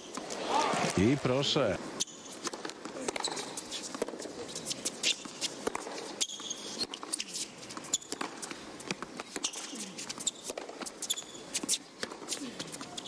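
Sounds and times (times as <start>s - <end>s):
low crowd hum: 0.1s - 6.1s
sneakers squeaking on court: 3.0s - 8.4s.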